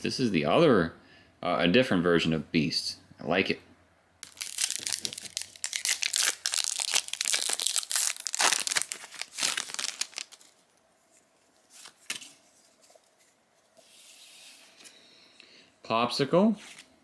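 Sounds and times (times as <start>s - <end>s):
wrapper crinkling and tearing: 4.2s - 10.6s.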